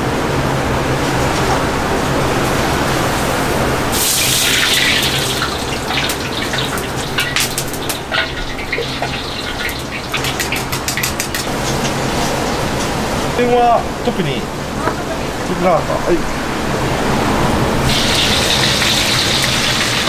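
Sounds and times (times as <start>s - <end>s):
steady hum and rush: 0.0s - 20.0s
water hissing on hot wok: 3.1s - 11.5s, 17.8s - 20.0s.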